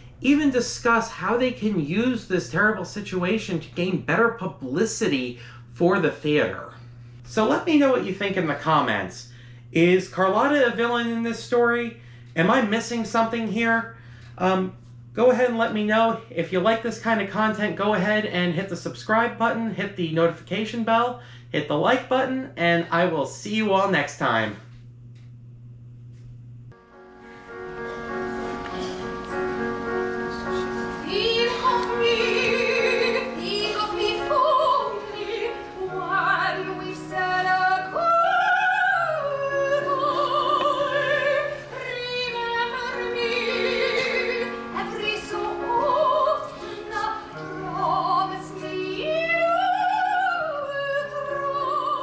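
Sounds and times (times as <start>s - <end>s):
orchestra sustained chords: 26.8s - 52.0s
soprano singing with vibrato: 28.0s - 52.0s.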